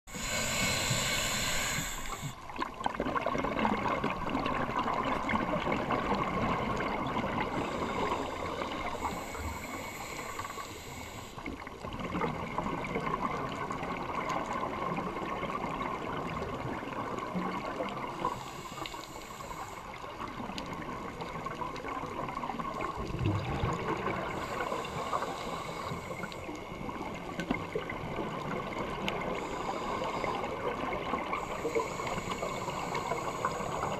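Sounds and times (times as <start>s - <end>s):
regulator breathing hiss: 0.1s - 2.5s, 7.5s - 11.7s, 18.1s - 20.3s, 24.2s - 26.9s, 29.2s - 33.9s
underwater bubbling and gurgling: 0.1s - 33.9s.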